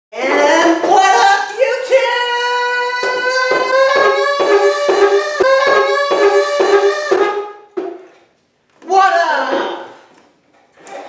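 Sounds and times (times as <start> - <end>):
man singing loudly: 2.4 - 5.4.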